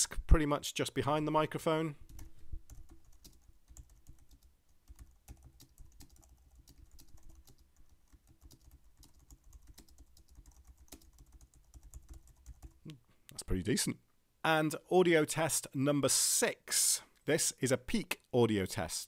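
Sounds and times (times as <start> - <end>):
computer keyboard typing: 2.1 - 12.9.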